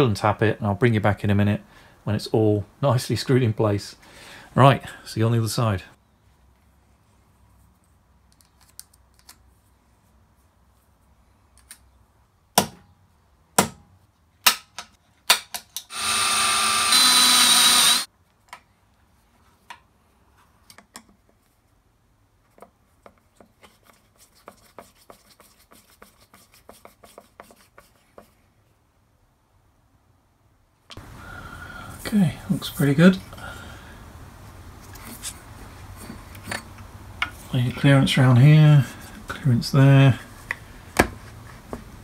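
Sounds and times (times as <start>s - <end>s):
power drill running: 15.9s - 18.1s.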